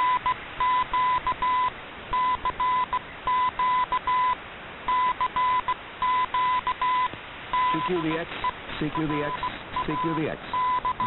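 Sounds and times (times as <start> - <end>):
morse code tone: 0.0 - 11.0
shortwave radio hiss: 0.0 - 11.0.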